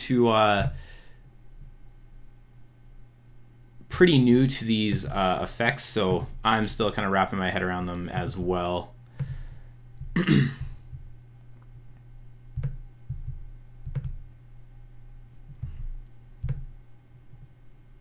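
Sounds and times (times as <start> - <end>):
steady low hum: 0.0 - 18.0
man clearing his throat: 10.1 - 10.8
computer mouse clicks: 12.6 - 14.2.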